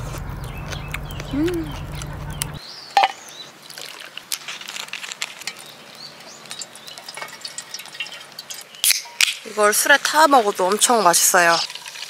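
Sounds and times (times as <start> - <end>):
low steady hum: 0.0 - 2.6
liquid trickling into metal tin: 5.4 - 9.3, 11.4 - 12.0.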